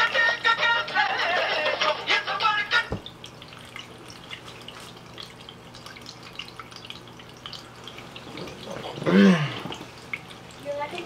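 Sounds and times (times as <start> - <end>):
man groaning: 9.0 - 9.6.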